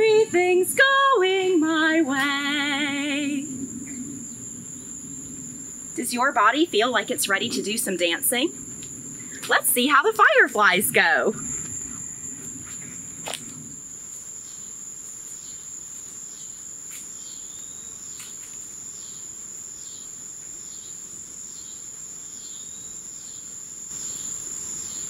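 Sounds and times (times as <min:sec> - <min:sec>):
insect chirps: 0:00.0 - 0:25.0
insects high-pitched trill: 0:00.0 - 0:25.0.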